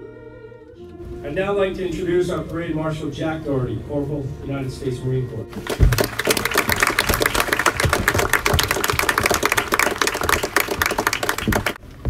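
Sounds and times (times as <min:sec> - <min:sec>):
crowd applauding: 0:05.6 - 0:11.8.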